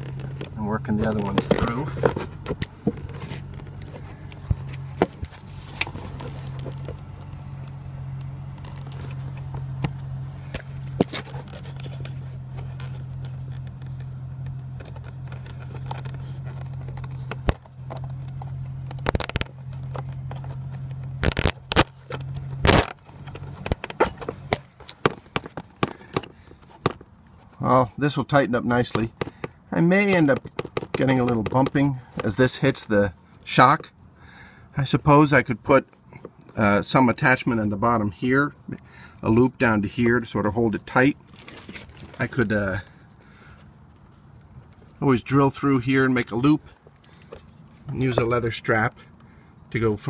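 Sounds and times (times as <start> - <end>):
knocks and bumps: 14.8 - 27.1, 28.8 - 32.4
zip ties scraping through leather: 19.0 - 26.1.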